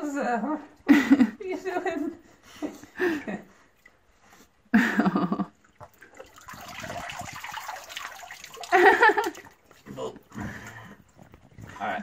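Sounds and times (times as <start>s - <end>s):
water pouring and dripping: 5.5s - 12.0s
water sloshing: 5.5s - 12.0s.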